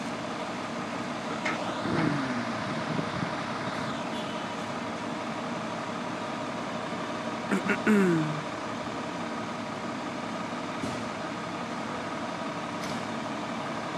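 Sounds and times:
diesel engine idling: 0.0s - 13.9s
short falling voice-like sound: 1.9s - 2.6s, 7.5s - 8.4s.

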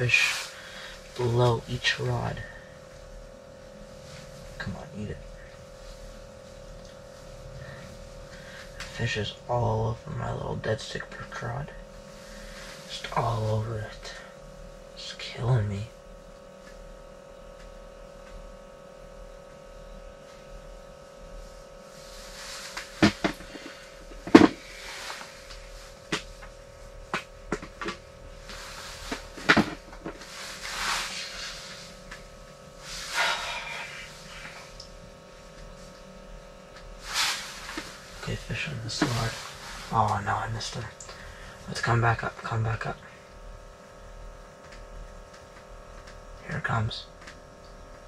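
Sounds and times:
steady low hum: 0.0s - 48.0s
rustling: 27.6s - 36.0s, 36.9s - 40.1s.

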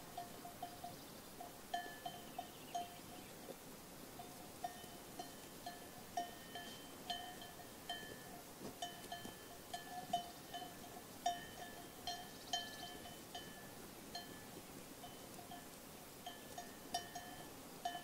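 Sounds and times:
sheep bells clanking: 0.0s - 3.3s, 4.2s - 18.0s
steady outdoor hiss: 0.0s - 18.0s.

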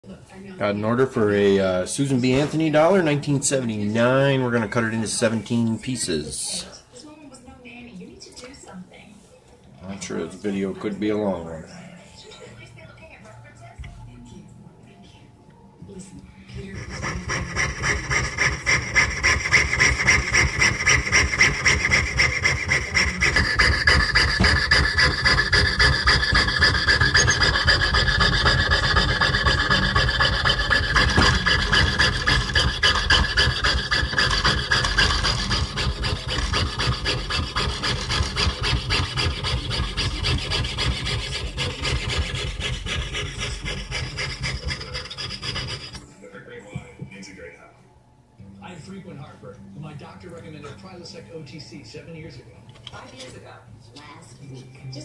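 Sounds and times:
saw blade rasping through coin: 16.6s - 46.0s.

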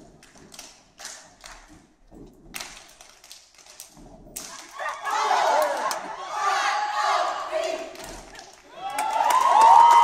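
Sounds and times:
stomps and claps: 0.0s - 6.1s, 7.8s - 10.0s.

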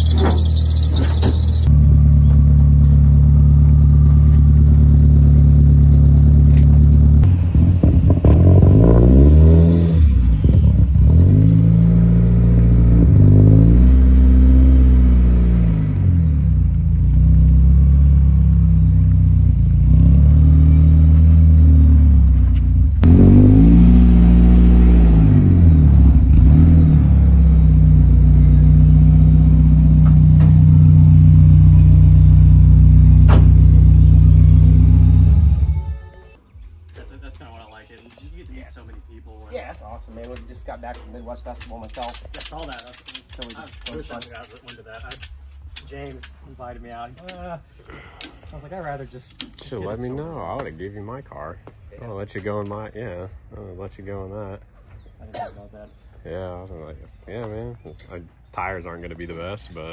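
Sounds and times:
car engine revving and idling: 0.0s - 36.1s.

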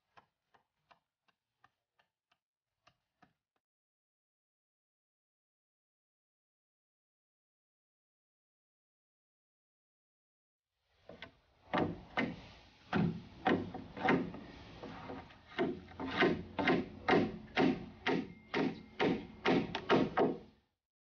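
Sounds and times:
hatchet knocking on wood: 15.6s - 20.5s.

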